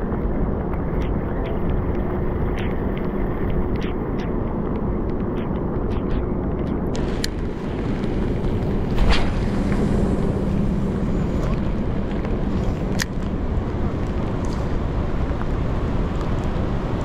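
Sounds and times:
faint steady hum: 0:00.0 - 0:17.0
wind rumbling on microphone: 0:00.0 - 0:17.0
raindrops tapping: 0:06.9 - 0:17.0.

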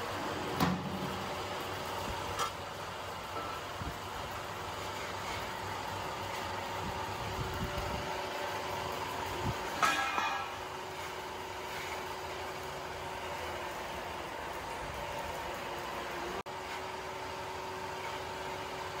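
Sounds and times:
sharp metallic clank: 0:09.8 - 0:10.6.

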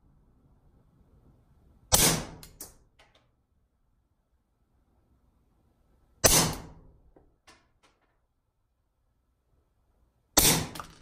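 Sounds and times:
suppressed pistol shot: 0:01.9 - 0:02.5, 0:06.2 - 0:06.8, 0:10.4 - 0:10.9.

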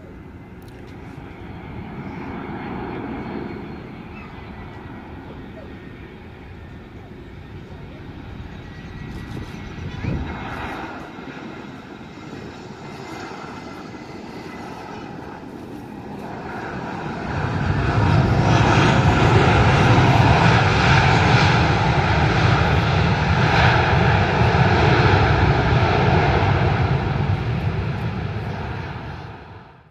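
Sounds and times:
jet engines roaring: 0:00.0 - 0:29.9.

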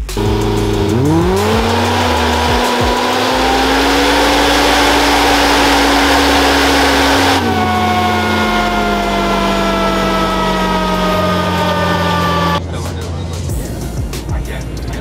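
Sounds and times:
engine revving high: 0:00.0 - 0:12.6.

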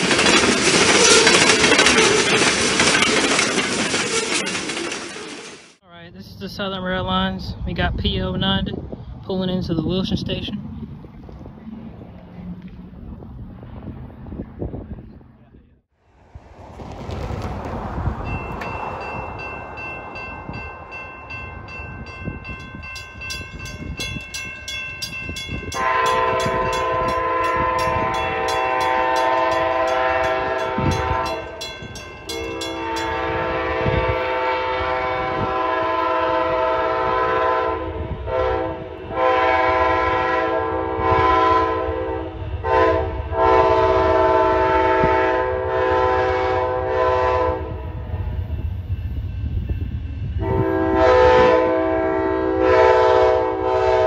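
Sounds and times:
locomotive air horn blasts: 0:25.7 - 0:31.6, 0:32.3 - 0:48.0, 0:50.4 - 0:54.0.

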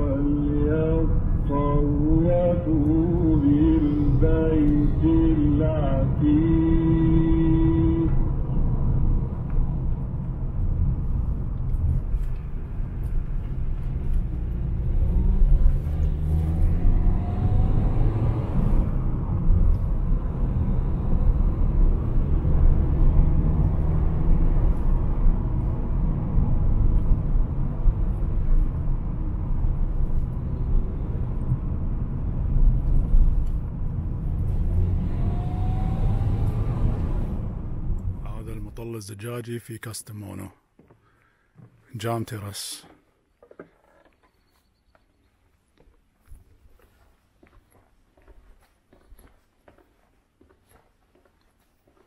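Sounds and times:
car engine: 0:00.0 - 0:39.0
road rumble: 0:00.0 - 0:52.0.

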